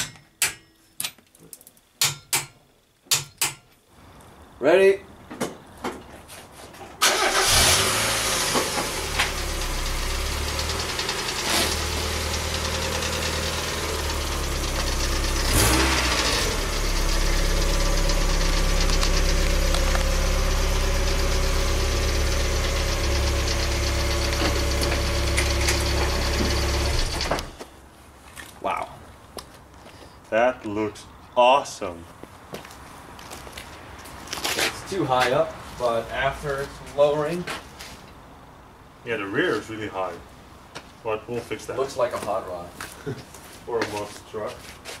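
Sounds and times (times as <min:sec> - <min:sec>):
car engine starting and running: 0:07.0 - 0:27.6.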